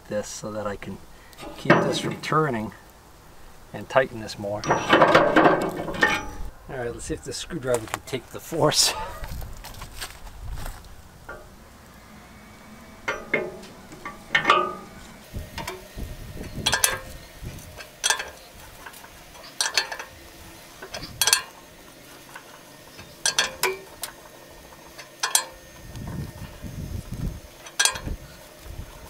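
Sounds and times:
ringing metal clank: 0:01.4 - 0:02.4, 0:04.6 - 0:06.5, 0:11.3 - 0:26.7, 0:27.4 - 0:28.5.

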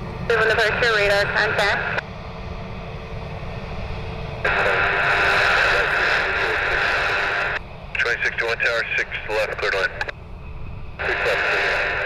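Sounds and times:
radio static hiss: 0:04.4 - 0:10.2, 0:11.0 - 0:12.0.

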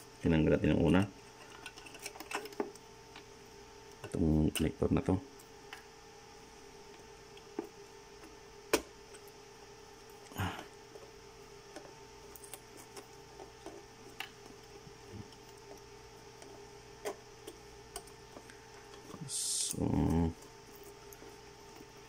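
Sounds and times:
faint hum: 0:00.0 - 0:22.0.

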